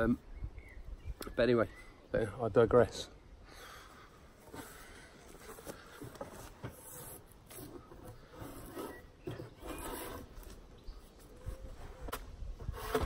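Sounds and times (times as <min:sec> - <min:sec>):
faint knocks and handling: 0:04.4 - 0:08.6
drawknife scraping bark: 0:04.5 - 0:13.0.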